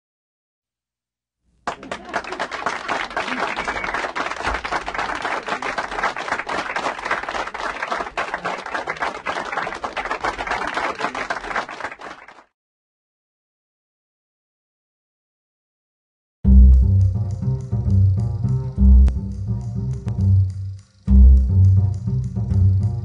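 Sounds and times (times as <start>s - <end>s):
audience applauding: 1.6s - 12.5s.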